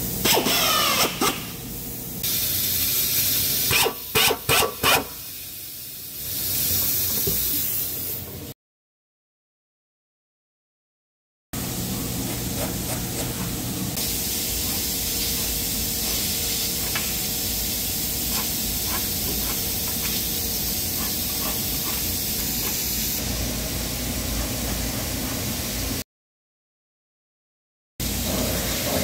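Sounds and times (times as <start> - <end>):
steady loud hiss: 1.4 - 4.3, 13.8 - 24.2.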